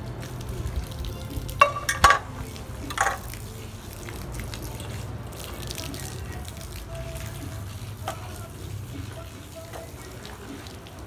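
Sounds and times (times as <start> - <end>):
hose water splashing: 0.0 - 11.0
metal bowl clanking: 1.6 - 3.4.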